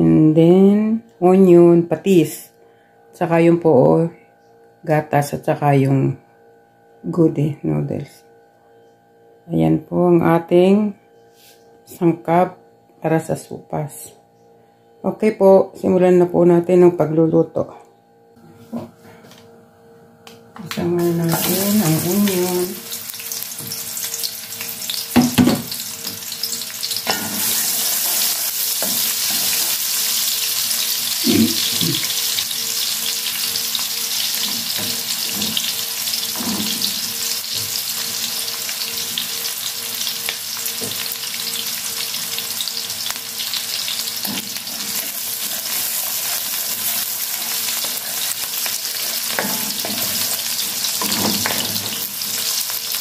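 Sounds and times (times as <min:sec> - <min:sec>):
onions sizzling in hot oil: 0:21.0 - 0:53.0.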